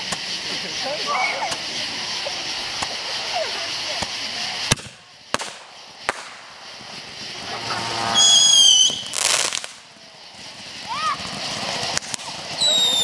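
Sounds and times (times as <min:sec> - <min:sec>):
burst of hiss: 0:00.0 - 0:13.0
firework whistle: 0:00.0 - 0:13.0
distant fireworks bangs: 0:01.4 - 0:13.0.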